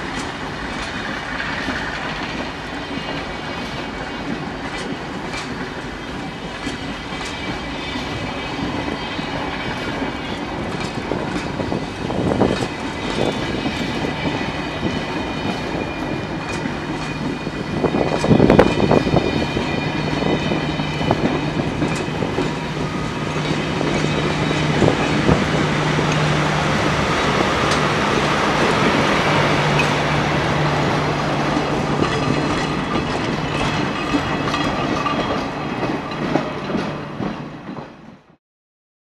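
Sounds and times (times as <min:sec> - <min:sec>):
train low drone: 0:00.0 - 0:38.4
train wheels clicking on track: 0:00.0 - 0:38.4.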